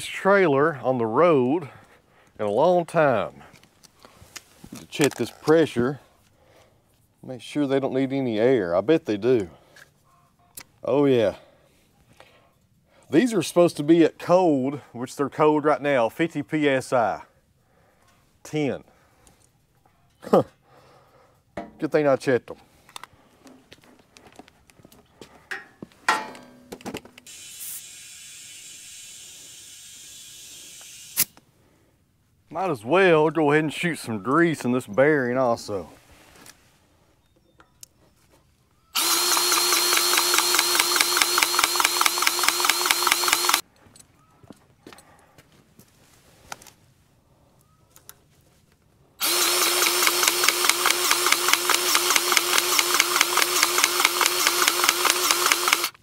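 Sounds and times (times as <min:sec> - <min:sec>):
air hissing into tire: 0:27.2 - 0:31.4
cordless grease gun pulsing: 0:27.2 - 0:31.4, 0:39.0 - 0:43.6, 0:49.2 - 0:56.0.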